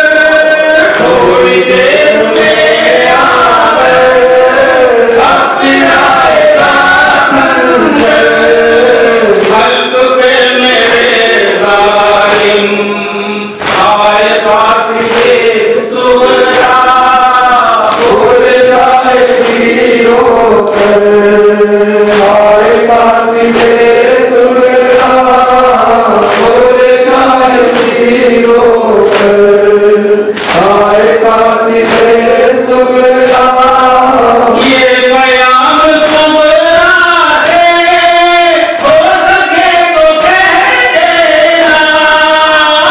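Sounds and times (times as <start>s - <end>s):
men chanting a mournful lament: 0.0s - 42.9s.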